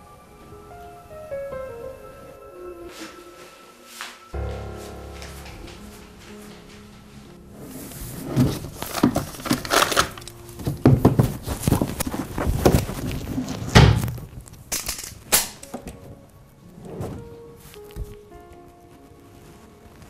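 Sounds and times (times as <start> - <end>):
rummaging in drawer: 8.0 - 13.7.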